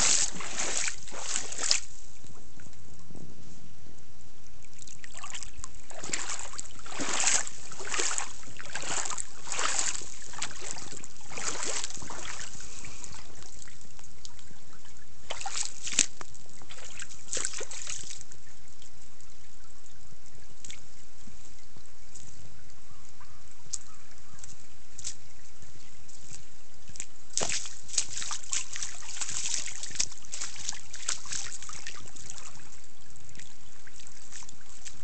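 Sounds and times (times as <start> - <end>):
footsteps splashing through water: 0.0 - 2.3, 4.7 - 18.5, 23.3 - 35.0
trickle of running water: 0.0 - 3.1, 4.4 - 35.0.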